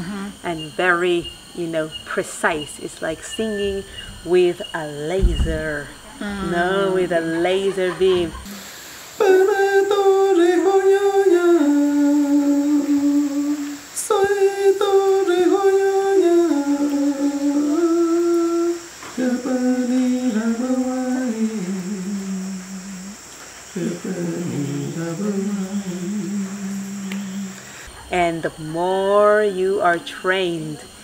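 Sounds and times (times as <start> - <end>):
man singing unaccompanied: 6.4 - 29.4.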